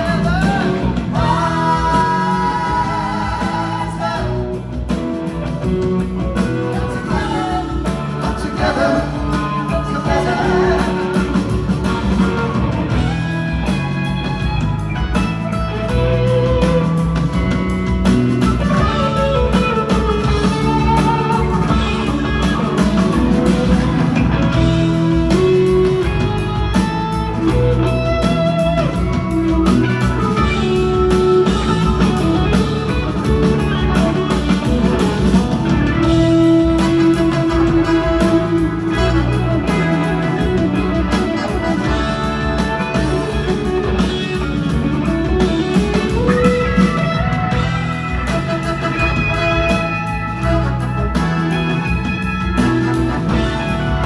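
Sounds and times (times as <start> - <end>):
person singing: 0.0 - 5.0, 6.7 - 11.8
live rock band: 0.0 - 54.0.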